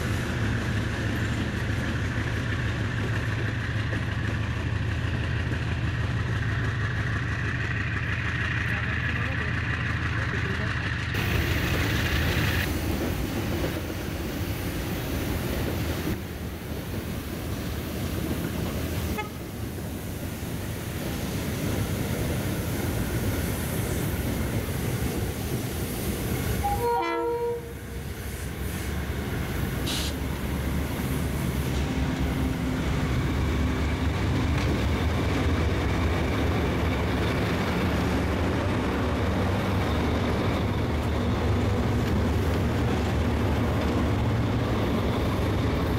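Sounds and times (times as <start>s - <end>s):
diesel locomotive engines drone: 0.0s - 45.9s
train wheels on rails: 0.0s - 45.9s
train horn: 19.1s - 19.5s, 26.6s - 27.9s.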